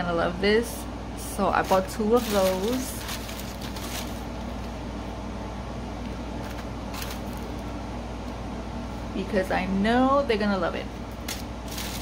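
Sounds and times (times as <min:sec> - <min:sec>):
low room hum: 0:00.0 - 0:12.0
plastic sheets rustling: 0:01.5 - 0:04.8, 0:06.4 - 0:07.6, 0:11.3 - 0:12.0.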